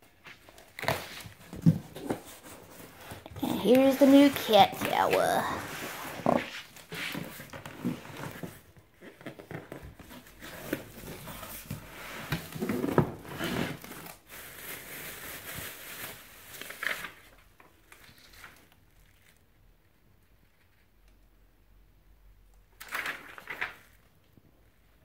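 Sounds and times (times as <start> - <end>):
plastic wrapping crinkling: 13.7 - 19.4.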